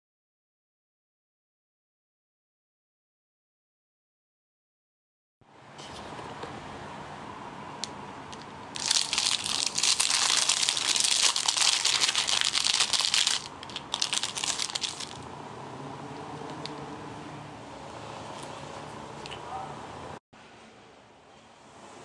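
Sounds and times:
plastic wrapping crinkling: 0:08.7 - 0:15.2.

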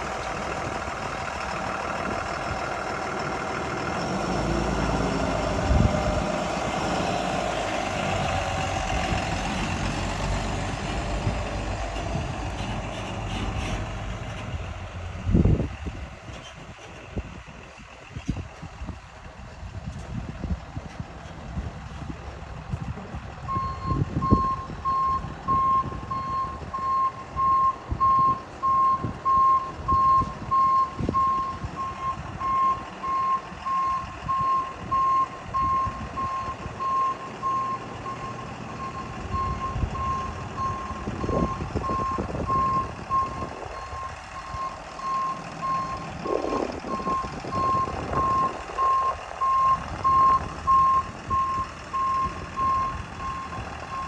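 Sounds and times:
diesel engine running: 0:00.0 - 0:54.0
truck reverse alarm beeping: 0:23.5 - 0:54.0.

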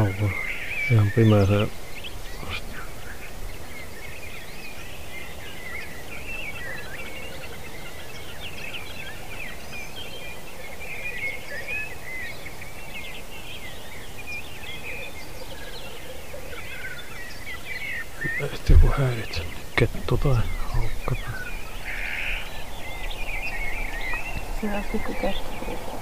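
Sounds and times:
high bird chirps and twitters: 0:00.0 - 0:26.0
low bubbling of grouse: 0:18.2 - 0:21.6.

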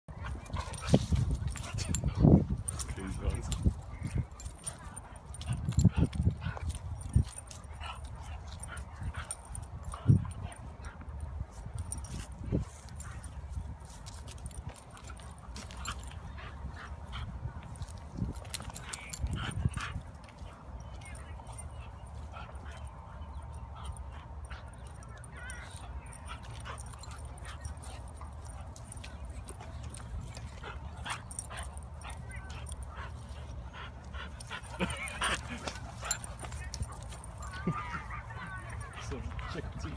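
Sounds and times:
dogs scuffling: 0:24.6 - 0:39.9.

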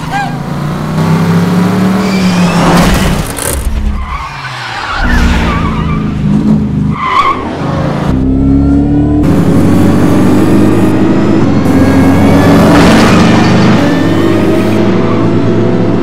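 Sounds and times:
tyres squealing and skidding: 0:00.0 - 0:00.5, 0:01.9 - 0:07.9
car engine revving hard: 0:08.3 - 0:16.0.

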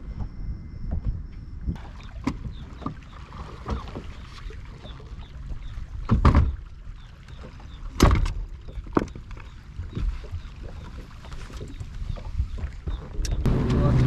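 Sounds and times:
hollow knocks on boat deck: 0:06.0 - 0:06.6
low steady rumble: 0:13.2 - 0:14.0.

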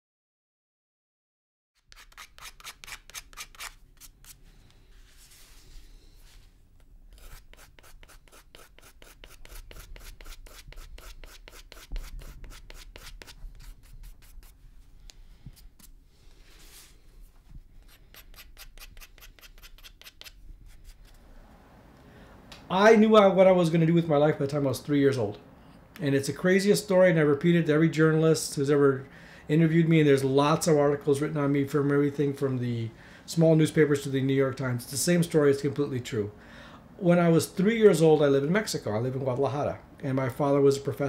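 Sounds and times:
hand rubbing mask edge: 0:01.8 - 0:21.3.

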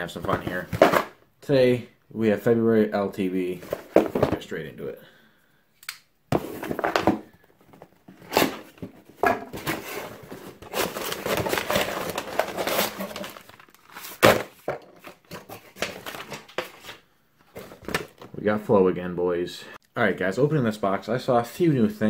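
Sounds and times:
paper packaging rustling: 0:06.4 - 0:18.4.

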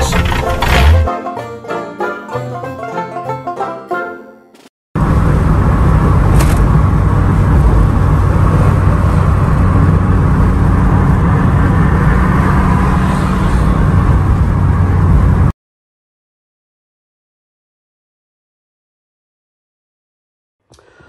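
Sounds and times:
car engine drone: 0:00.0 - 0:01.1, 0:05.0 - 0:15.5
road and wind noise: 0:00.0 - 0:01.1, 0:05.0 - 0:15.6.

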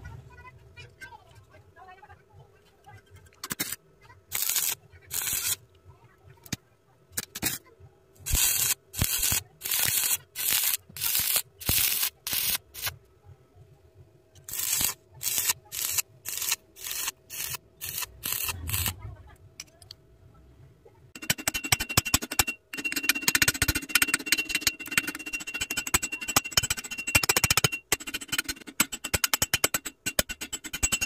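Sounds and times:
welding arc crackling and hissing: 0:03.5 - 0:05.6, 0:08.3 - 0:13.0, 0:14.4 - 0:19.0.

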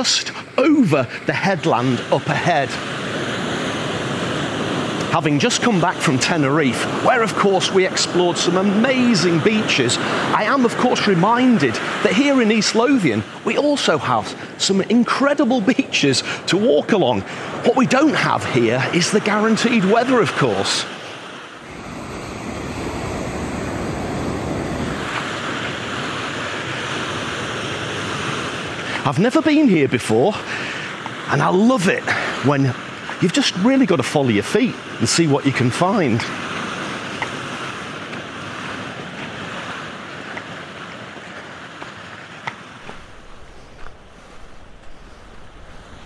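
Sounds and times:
surf washing on rocky shore: 0:00.0 - 0:46.0
waves breaking on beach: 0:00.0 - 0:46.0
wind rushing: 0:21.0 - 0:27.1, 0:42.8 - 0:46.0
wind rumble on microphone: 0:21.6 - 0:28.9, 0:36.3 - 0:46.0.

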